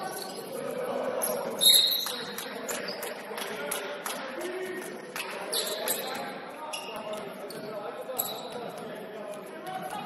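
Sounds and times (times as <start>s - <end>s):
players' voices: 0.0s - 10.0s
sneakers squeaking on court: 5.2s - 8.8s.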